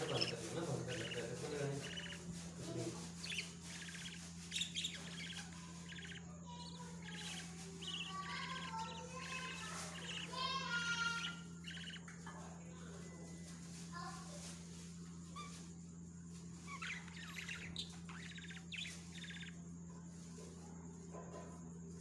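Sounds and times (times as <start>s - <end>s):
budgerigars chirping: 0.0s - 13.4s, 16.3s - 20.6s
steady low hum: 0.0s - 22.0s.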